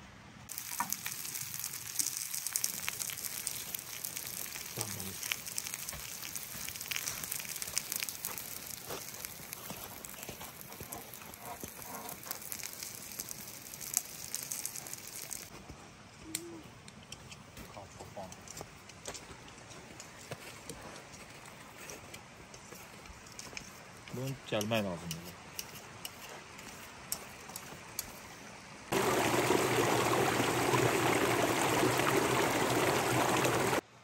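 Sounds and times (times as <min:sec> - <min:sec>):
fire crackling and sizzling: 0:00.5 - 0:15.6, 0:28.9 - 0:33.8.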